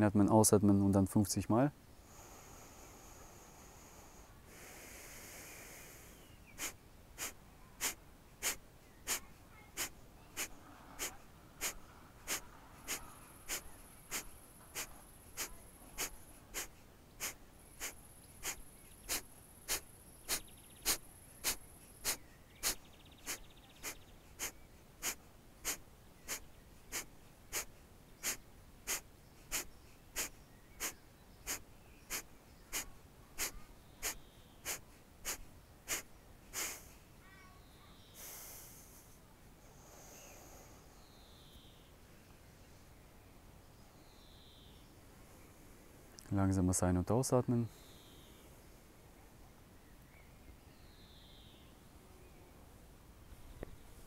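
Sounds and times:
long breath: 2.0 - 9.2, 9.8 - 37.0, 38.1 - 41.0
forceful nasal exhalations: 2.0 - 37.0, 38.1 - 40.9.

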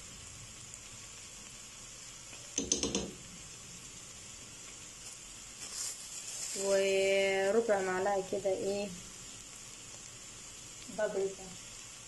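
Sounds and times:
faint steady hiss: 0.0 - 12.0
spoon knocking on pot: 2.5 - 3.3.

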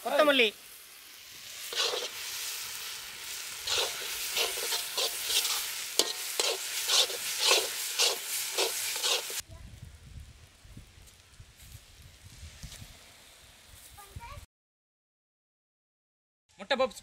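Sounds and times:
filling sizzling in a pan: 0.0 - 14.5
spoon scraping a pan: 1.6 - 2.2, 3.6 - 9.4.

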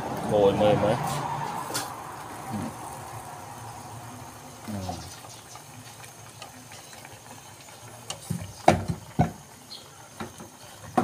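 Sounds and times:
ladle stirring in pot: 5.1 - 9.5.

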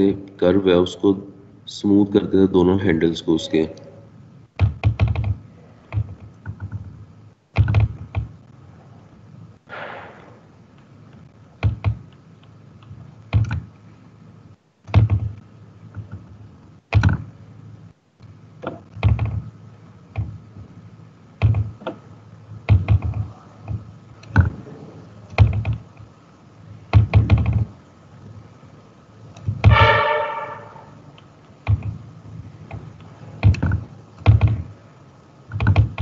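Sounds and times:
dull knocks and clicks: 4.6 - 8.4, 11.6 - 12.2, 13.3 - 13.7, 14.8 - 16.3, 16.9 - 17.3, 18.2 - 19.5, 20.1 - 20.4, 21.4 - 22.0, 22.7 - 24.6, 25.3 - 26.1, 26.9 - 27.8, 31.6 - 32.0, 32.6 - 34.7, 35.5 - 36.0
faint steady high tone: 29.7 - 31.1.

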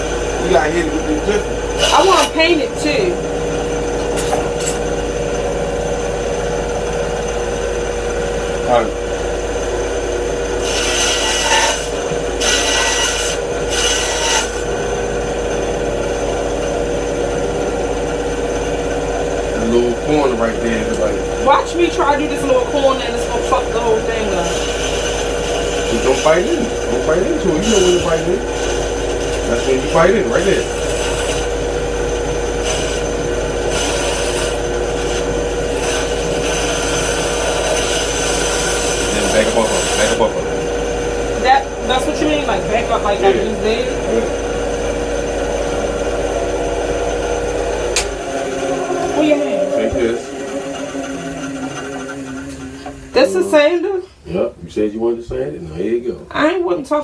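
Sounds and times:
band saw running: 0.0 - 54.5
saw blade cutting wood: 1.3 - 3.0, 10.6 - 14.7, 22.0 - 31.6, 32.4 - 40.5, 47.8 - 53.4.

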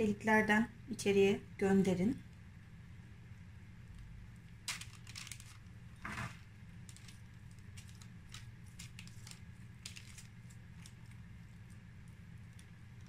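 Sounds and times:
low steady hum: 0.0 - 13.0
baking paper rustling: 4.6 - 13.0.

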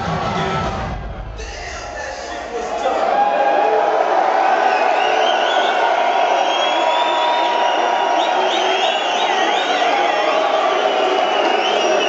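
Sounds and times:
crowd cheering: 0.0 - 12.0.

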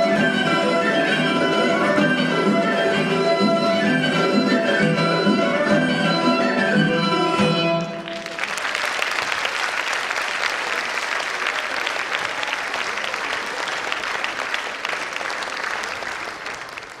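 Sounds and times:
folk dance music: 0.0 - 17.0
audience applauding: 7.8 - 17.0.

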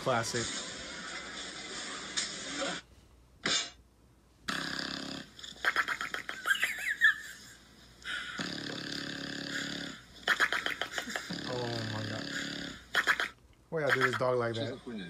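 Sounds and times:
dog snoring: 4.5 - 5.6, 8.2 - 10.1, 11.0 - 13.0.

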